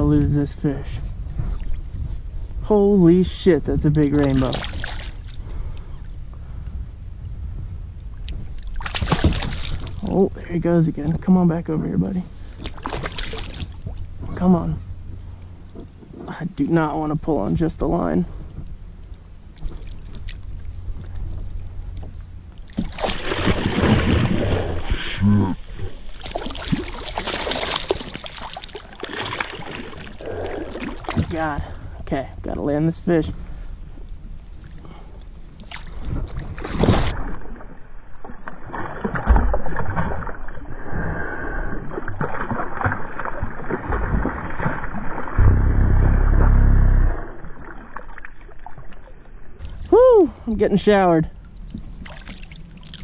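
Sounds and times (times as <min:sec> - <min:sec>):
water dripping and lapping: 0:04.1 - 0:06.0, 0:08.0 - 0:11.3, 0:12.4 - 0:14.4, 0:18.6 - 0:25.0, 0:25.6 - 0:32.1, 0:33.4 - 0:40.9, 0:41.7 - 0:46.0, 0:47.1 - 0:50.6, 0:51.3 - 0:53.0
fish splashing water: 0:08.6 - 0:10.0, 0:12.6 - 0:14.1, 0:21.8 - 0:24.9, 0:26.1 - 0:31.3, 0:41.8 - 0:46.0, 0:51.5 - 0:53.0
fish splashing loudly: 0:08.8 - 0:10.0, 0:22.8 - 0:24.9, 0:26.2 - 0:30.1.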